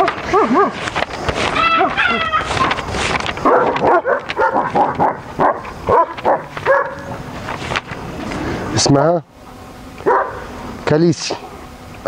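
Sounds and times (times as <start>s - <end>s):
dogs barking and yipping: 0.0s - 7.7s, 10.0s - 10.6s.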